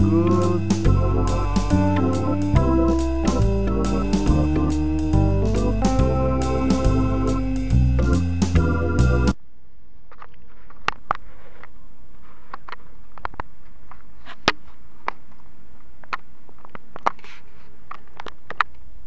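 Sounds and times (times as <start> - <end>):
steady low hum: 0.0 - 9.8.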